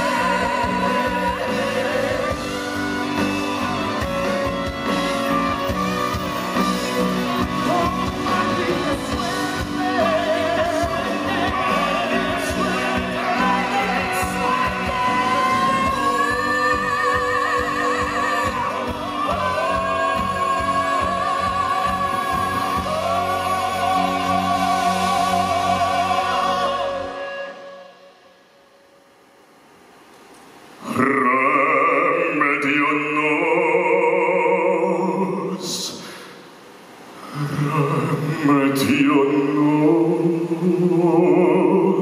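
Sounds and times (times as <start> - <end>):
man singing into microphone: 0.0 - 3.7, 7.4 - 28.1, 30.8 - 36.1, 37.2 - 42.0
band accompaniment: 0.0 - 27.2.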